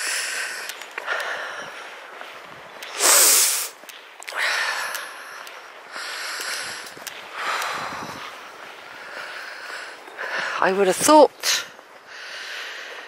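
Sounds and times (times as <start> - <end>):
person breathing: 0.0 - 10.6, 11.9 - 13.0
nasal sniff: 2.9 - 3.8.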